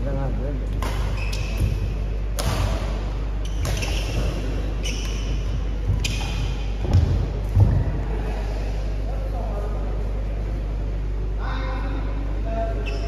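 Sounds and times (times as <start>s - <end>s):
rackets hitting shuttlecock: 0.7s - 7.7s
heavy thuds: 5.6s - 8.2s.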